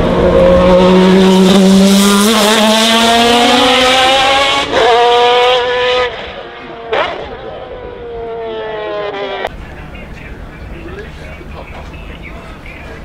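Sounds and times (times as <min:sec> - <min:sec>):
race car accelerating past: 0:00.0 - 0:09.5.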